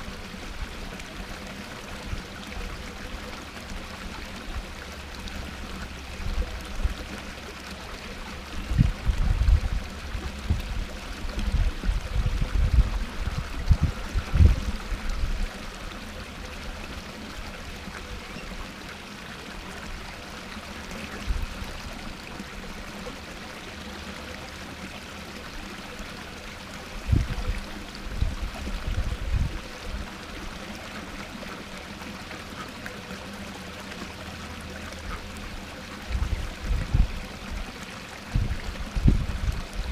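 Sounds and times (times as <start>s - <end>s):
waterfall splashing into pond: 0.0s - 39.9s.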